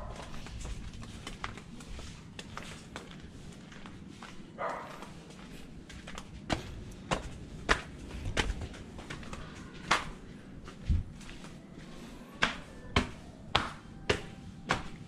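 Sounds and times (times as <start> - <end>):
flip-flop footsteps on stone: 0.0 - 15.0.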